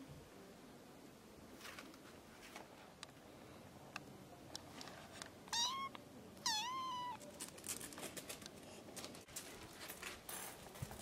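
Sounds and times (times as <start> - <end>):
kitten meowing: 5.5 - 7.2.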